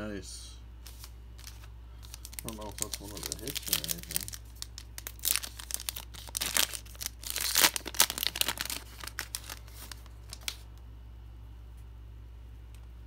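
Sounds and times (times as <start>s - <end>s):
foil wrapper crinkling and tearing: 0.9s - 10.7s.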